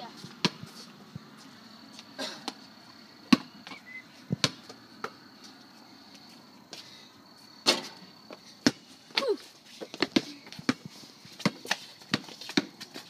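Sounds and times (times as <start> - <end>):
basketball bouncing on pavement: 0.1 - 1.4, 2.4 - 5.4, 7.6 - 13.0.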